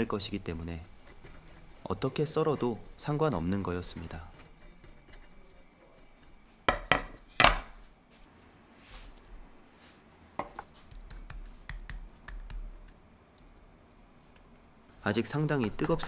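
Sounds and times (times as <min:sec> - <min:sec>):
kitchen utensils knocking: 0:06.7 - 0:07.7.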